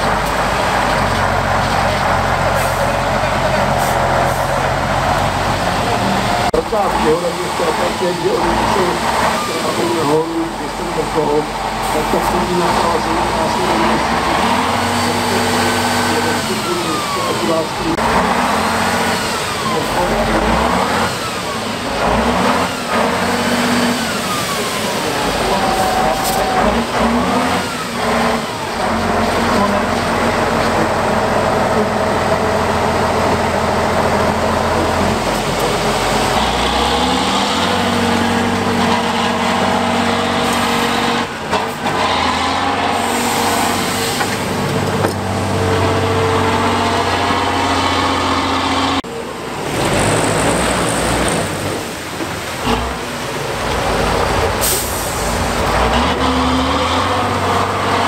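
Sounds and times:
diesel truck engines revving: 0:00.0 - 0:58.0.

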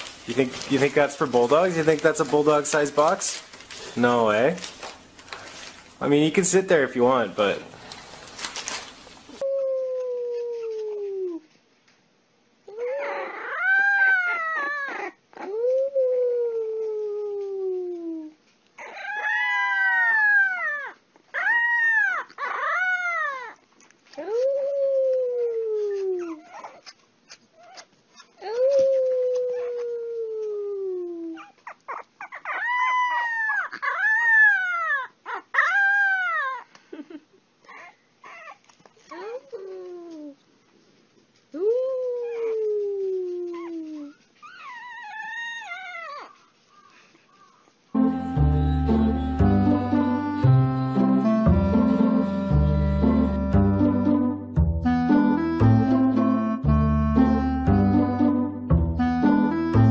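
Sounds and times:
puppy howling: 0:12.7 - 0:23.6, 0:28.4 - 0:36.6.

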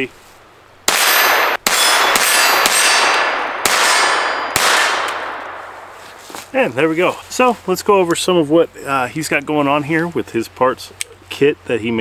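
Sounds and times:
pistol shots ringing: 0:00.9 - 0:05.8.

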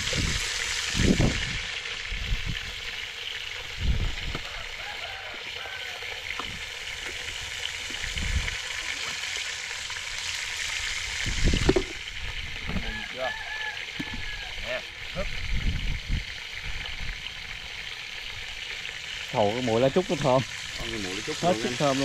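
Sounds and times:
food frying in hot oil: 0:00.0 - 0:22.0.

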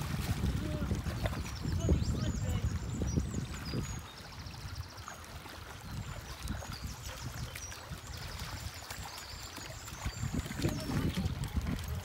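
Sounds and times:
river water trickling: 0:00.0 - 0:12.0
small birds chirping: 0:00.6 - 0:12.0.

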